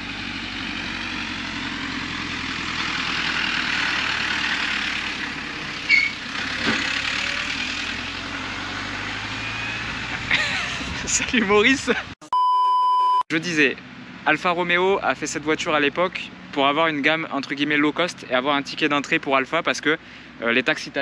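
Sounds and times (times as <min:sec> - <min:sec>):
tractor engine driving past: 0:00.0 - 0:10.8.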